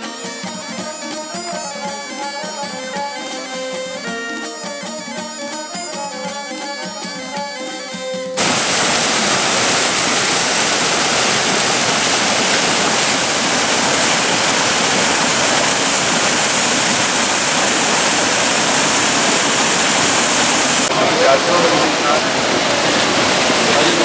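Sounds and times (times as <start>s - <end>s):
water rushing over a weir: 8.4s - 24.0s.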